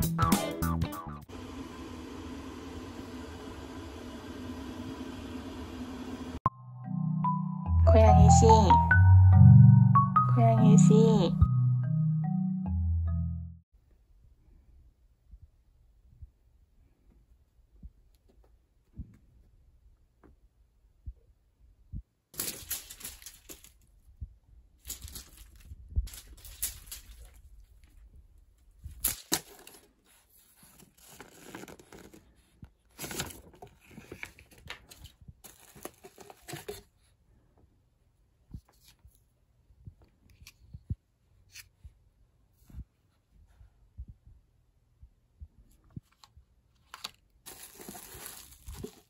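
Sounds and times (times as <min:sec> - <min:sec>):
packaging rustling and crinkling: 0:22.4 - 0:24.1, 0:24.8 - 0:28.0, 0:28.8 - 0:37.0, 0:46.8 - 0:49.0.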